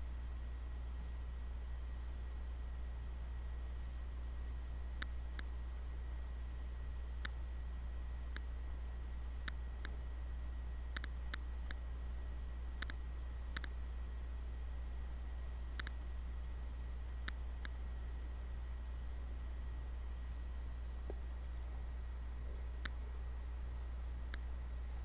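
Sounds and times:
steady low hum: 0.0 - 25.0
computer mouse clicking: 5.0 - 5.5, 7.2 - 7.4, 10.9 - 11.8, 12.8 - 13.8, 15.7 - 16.0, 24.3 - 24.5.

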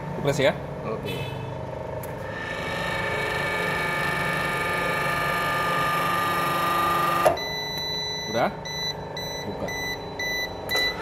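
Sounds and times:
hydraulic crimping machine humming: 1.7 - 9.2
machine whining tones: 2.2 - 11.0.

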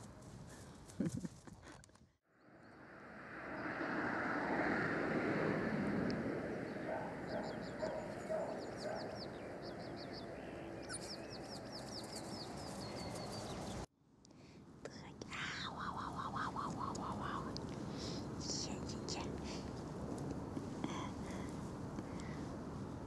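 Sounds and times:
songbirds chirping: 6.0 - 13.9.

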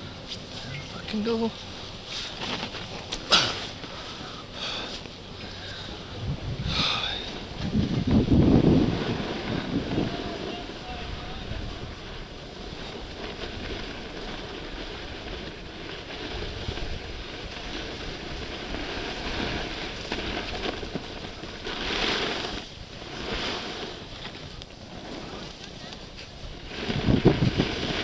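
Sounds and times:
skis hissing over snow: 0.0 - 28.0
wind buffeting microphone: 5.2 - 28.0.

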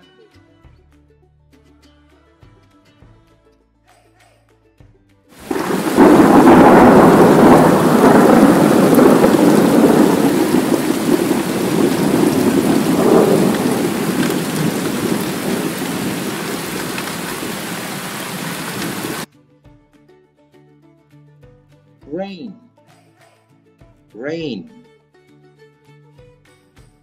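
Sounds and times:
rumbling thunder: 5.4 - 19.3
steady rain: 5.4 - 19.3.

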